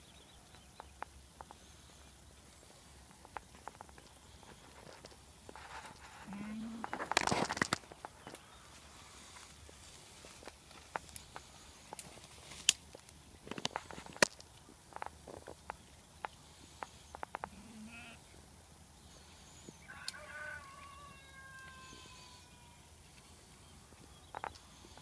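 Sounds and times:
twigs snapping and crackling: 6.9 - 8.5, 10.2 - 15.8
goat bleating: 17.5 - 18.2.

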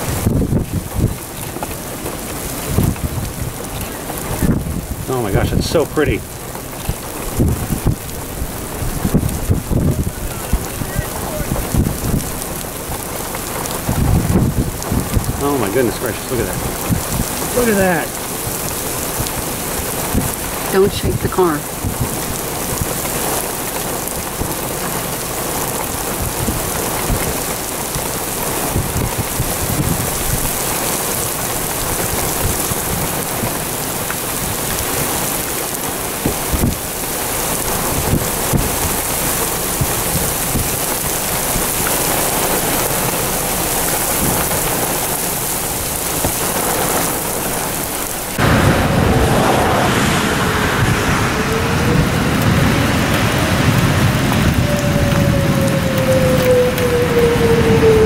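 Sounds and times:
rain beating on a car: 0.0 - 58.0
rough wind noise: 0.0 - 58.0.

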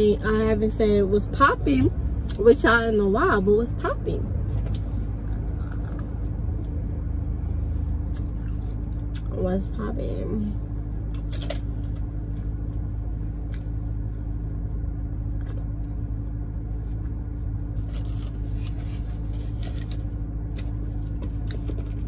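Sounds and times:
chewing and mouth sounds: 4.7 - 6.8, 8.1 - 9.3.

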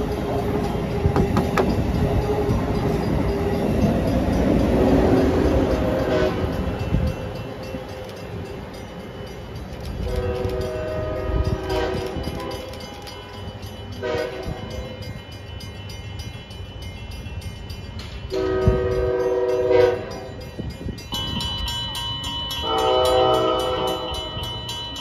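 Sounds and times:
train air horn blasts: 6.0 - 6.6, 10.0 - 12.8, 14.0 - 14.7, 18.3 - 20.2, 22.6 - 24.2.

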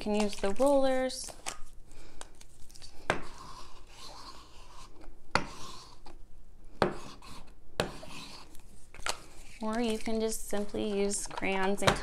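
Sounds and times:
paint roller rubbing on paper: 3.2 - 6.1, 7.0 - 8.6.

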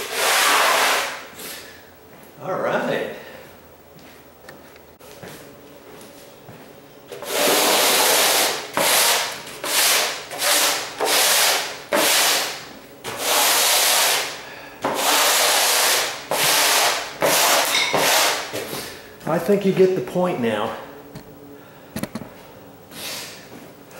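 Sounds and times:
broom scraping across subfloor: 0.0 - 1.6.

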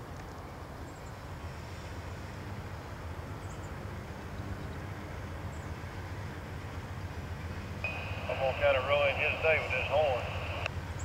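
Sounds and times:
diesel locomotive rumbling: 0.8 - 11.0
high steady tone: 7.8 - 10.7.

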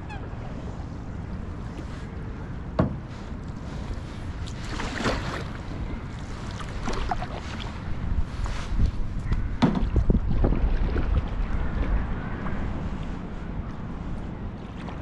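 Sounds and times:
wind rumble on microphone: 0.0 - 15.0
paddle splashing in water: 3.7 - 8.9, 9.5 - 13.1.

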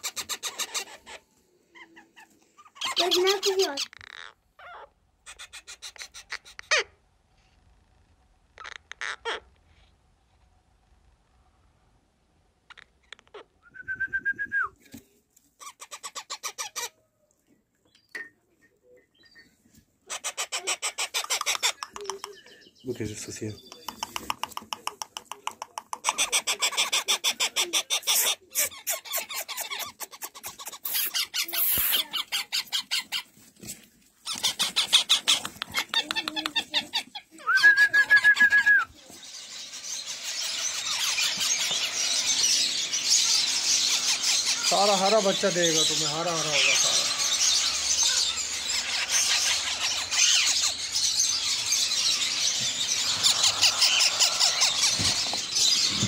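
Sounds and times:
parrot chicks begging calls: 0.0 - 6.9, 8.6 - 9.5, 15.6 - 17.0, 20.1 - 23.2, 26.0 - 33.4, 34.2 - 56.0.

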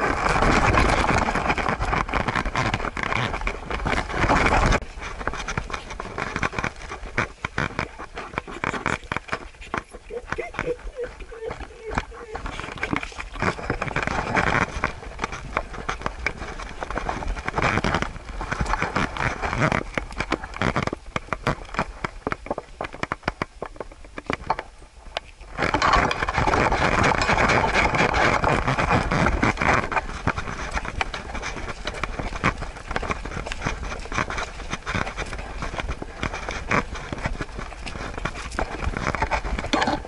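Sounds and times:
dog walking on dry leaves: 7.9 - 20.5.

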